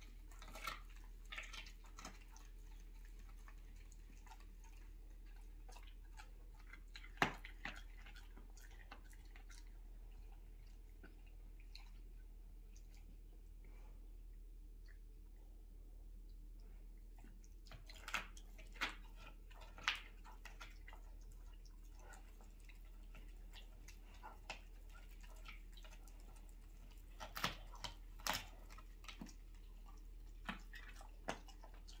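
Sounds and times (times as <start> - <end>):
dog teeth crunching on bone: 0.0 - 9.7, 23.0 - 32.0
low steady hum: 0.0 - 32.0.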